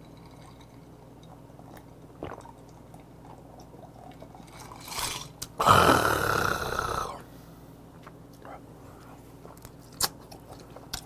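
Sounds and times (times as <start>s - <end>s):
man swallowing drink: 2.2s - 2.5s, 5.5s - 7.2s.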